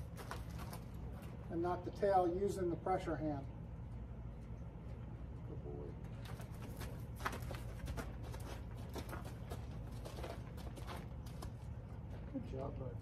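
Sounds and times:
steady low rumble: 0.0 - 13.0
hoof steps on sand: 6.0 - 12.2.

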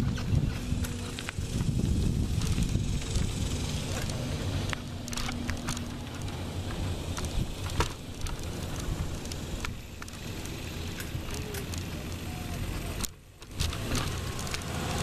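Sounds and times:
wind on microphone: 0.0 - 9.9
bicycles rolling on concrete: 0.0 - 15.0
clicks and ticks: 13.0 - 14.8.

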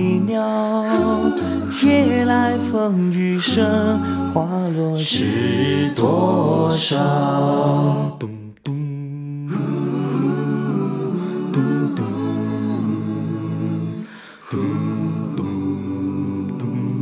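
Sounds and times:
person humming a melody: 0.0 - 6.0.

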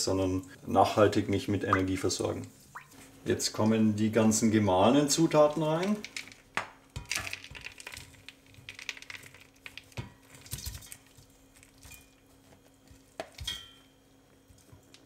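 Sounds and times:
dry mix rattling into pot: 5.3 - 11.2.

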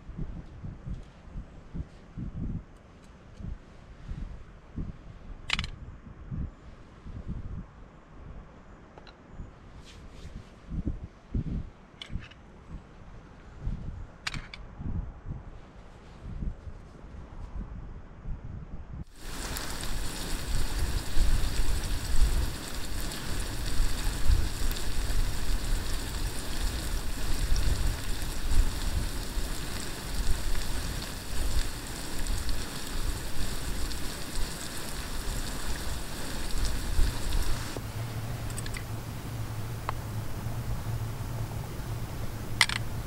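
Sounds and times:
fish and vegetables sizzling in a pan: 19.1 - 43.0
low uneven rumble: 19.2 - 43.0.

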